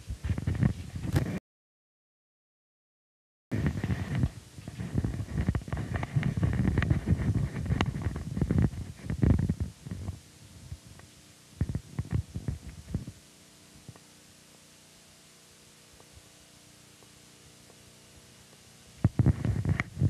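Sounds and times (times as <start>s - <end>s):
crackling clicks and thumps: 0.0s - 1.4s, 3.5s - 14.1s, 16.9s - 20.0s.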